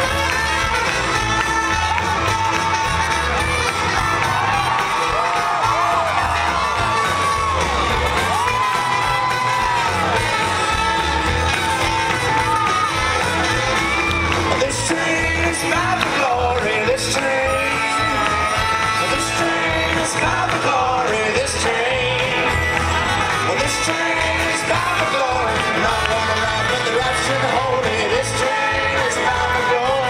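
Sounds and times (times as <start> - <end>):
people singing: 14.4 - 30.0.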